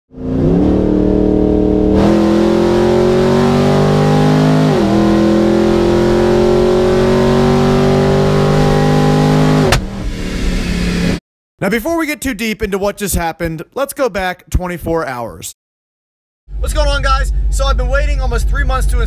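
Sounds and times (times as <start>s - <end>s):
car engine at full throttle: 0.1s - 11.2s.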